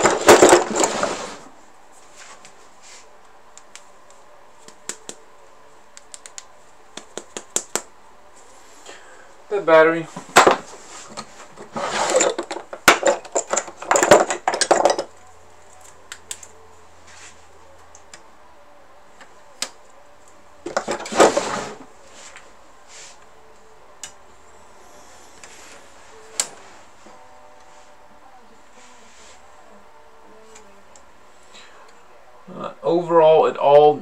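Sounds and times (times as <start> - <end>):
small hard objects clattering: 0.0 - 1.4, 10.3 - 15.1.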